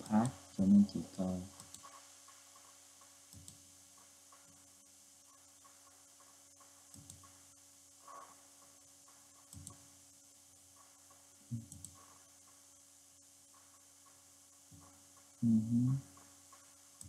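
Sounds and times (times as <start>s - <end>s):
low room hum: 0.0s - 17.0s
computer mouse clicks: 1.5s - 3.6s, 5.3s - 7.4s, 9.1s - 9.9s, 11.5s - 12.6s.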